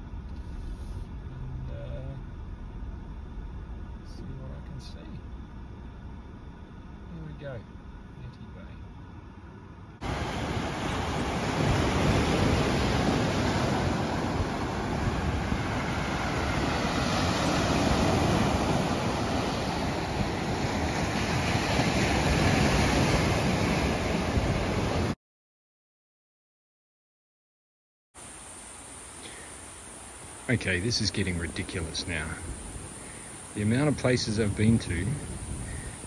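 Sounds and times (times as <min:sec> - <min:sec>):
waves breaking on beach: 0:10.0 - 0:25.2, 0:31.3 - 0:36.0
wind rumbling on microphone: 0:10.0 - 0:25.2, 0:30.8 - 0:36.0.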